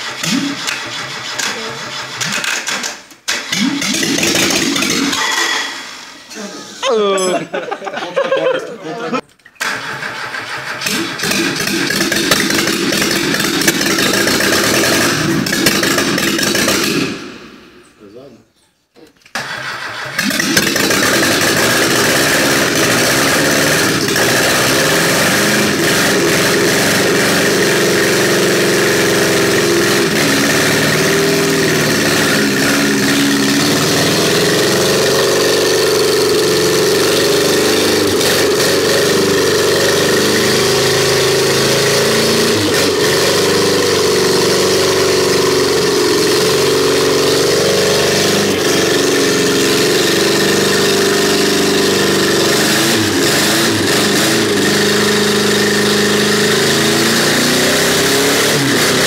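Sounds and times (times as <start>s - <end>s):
car engine idling: 9.6s - 17.8s, 19.4s - 41.9s.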